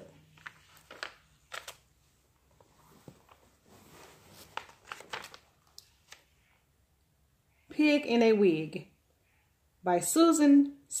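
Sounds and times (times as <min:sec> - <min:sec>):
book rustling: 0:00.0 - 0:06.5.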